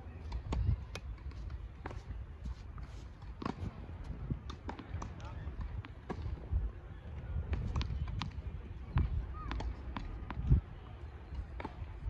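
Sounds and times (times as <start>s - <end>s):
tennis ball bouncing on hard court: 7.5s - 10.5s.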